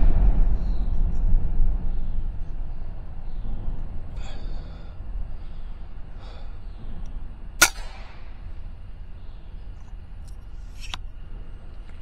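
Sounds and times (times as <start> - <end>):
low rumble: 0.0 - 12.0
suppressed air rifle shot: 7.6 - 8.5.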